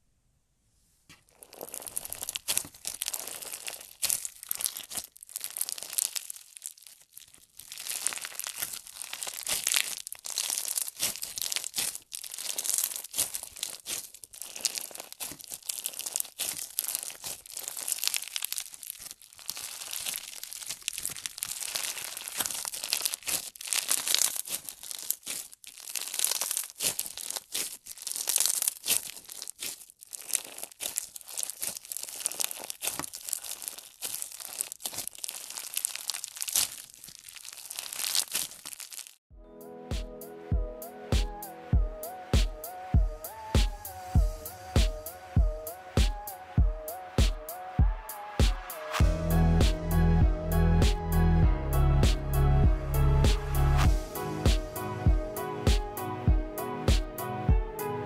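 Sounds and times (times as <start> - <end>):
slime with beads crunching: 1.2 - 39.3.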